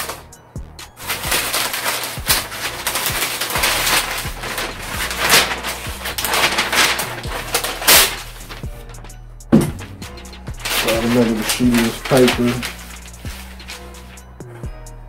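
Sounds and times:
paper rustling and crinkling: 0:01.0 - 0:14.3.

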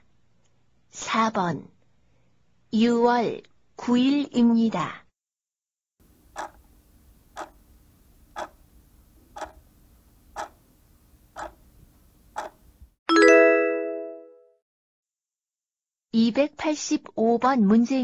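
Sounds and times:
clock ticking: 0:06.3 - 0:06.7, 0:07.4 - 0:07.6, 0:08.3 - 0:08.6, 0:09.3 - 0:09.6, 0:10.3 - 0:10.6, 0:11.4 - 0:11.6, 0:12.4 - 0:12.6.

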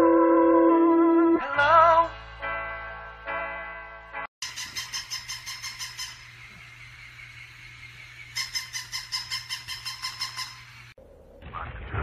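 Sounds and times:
squeaky toy squeaking: 0:04.4 - 0:06.2, 0:08.4 - 0:10.6.

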